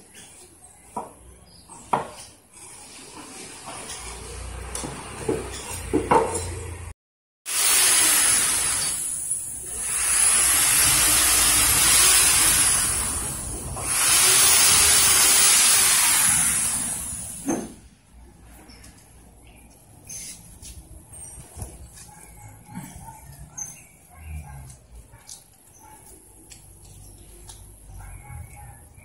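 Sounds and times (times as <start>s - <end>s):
loud even hissing: 7.5s - 17.8s.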